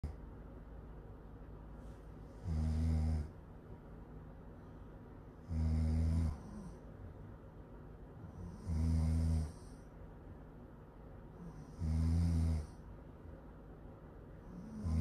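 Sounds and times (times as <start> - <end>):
woman snoring: 2.4 - 3.3, 5.4 - 6.8, 8.3 - 9.8, 11.4 - 12.8, 14.5 - 15.0.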